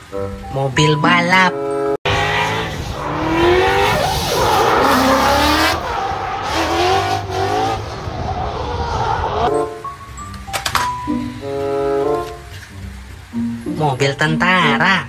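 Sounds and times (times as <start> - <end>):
car engine revving: 2.0 - 9.6
tyres squealing: 2.1 - 9.5.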